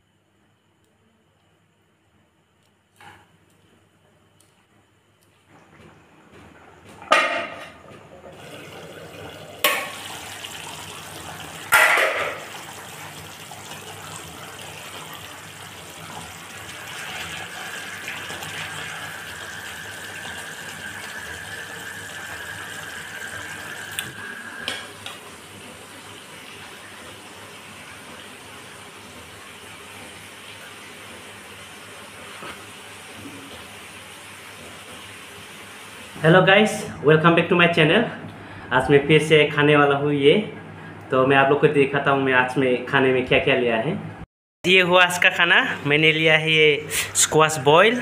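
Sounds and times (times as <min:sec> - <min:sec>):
pan lid and spatula clanking: 0:11.7 - 0:12.4.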